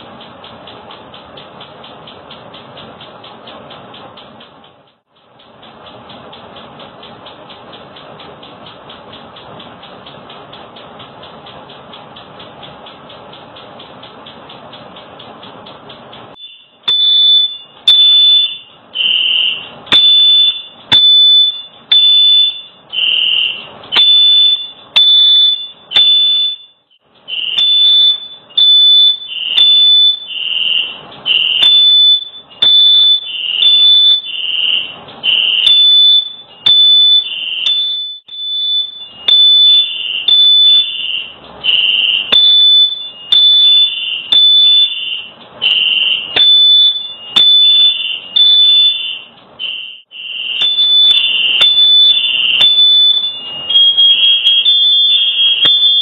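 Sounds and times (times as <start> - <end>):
fire alarm beeping: 16.3 - 56.0.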